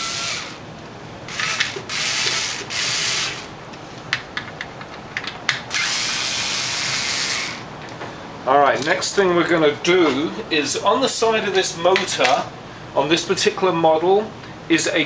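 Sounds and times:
power driver spinning bolts: 1.3 - 3.5.

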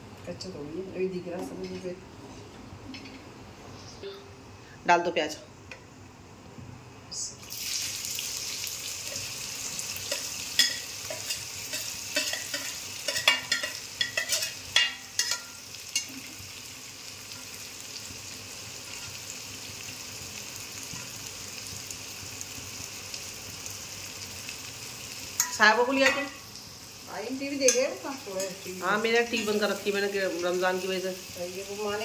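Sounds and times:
onions sizzling in hot oil: 7.4 - 32.0
metal utensils scraping a pan: 10.1 - 16.1.

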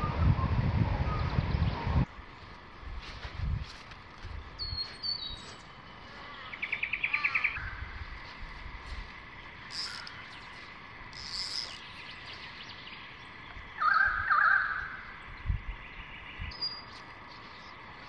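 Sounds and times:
wild birds calling: 4.2 - 18.0
faint insect tone: 6.0 - 14.0.

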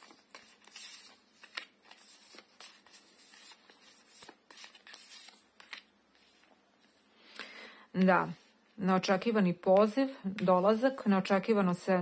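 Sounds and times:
cards sliding and flicking: 0.0 - 6.5.

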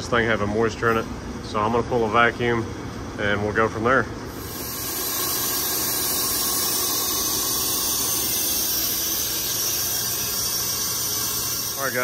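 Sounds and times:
vacuum pump hissing: 4.3 - 12.0.

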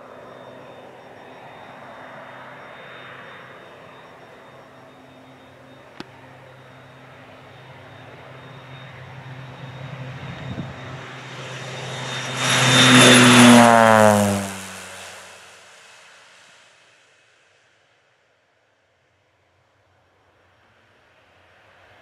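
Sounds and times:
propeller plane passing low: 0.0 - 16.1.

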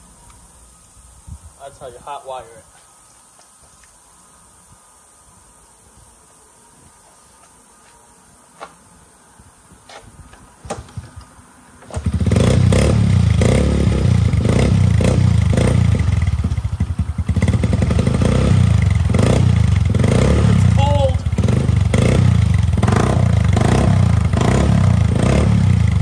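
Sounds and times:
dirt bike engine running: 12.0 - 26.0.

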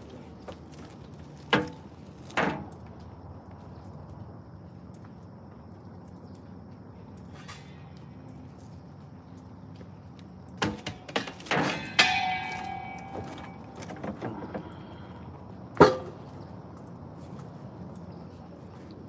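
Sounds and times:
knocks and clatters: 10.6 - 15.1
ringing metallic clang: 11.1 - 14.5.

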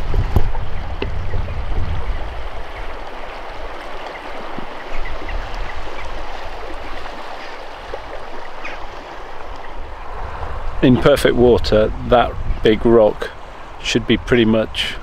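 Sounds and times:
wind rumble on microphone: 0.0 - 7.2, 9.5 - 15.0
river water rushing over rocks: 0.0 - 11.4.

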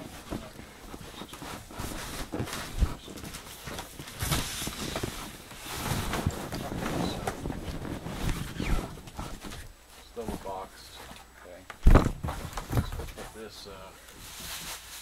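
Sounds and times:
cardboard flaps flexing and scraping: 0.0 - 10.6, 11.8 - 13.5
cardboard rustling: 0.0 - 11.2, 11.8 - 15.0
knocks and thumps on box: 11.8 - 13.3.

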